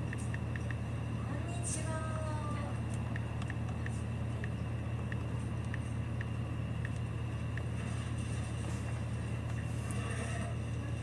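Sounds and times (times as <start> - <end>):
faint regular ticking: 0.0 - 0.9, 2.9 - 7.7.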